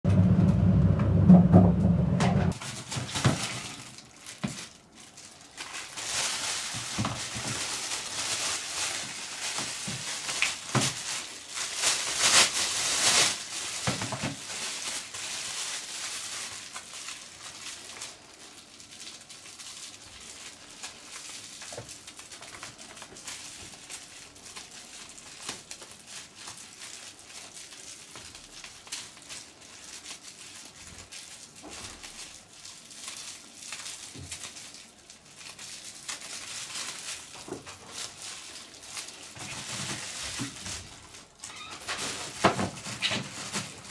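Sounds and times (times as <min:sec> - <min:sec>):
low handling noise: 0:00.0 - 0:02.6
plastic film crinkling: 0:02.5 - 0:43.9.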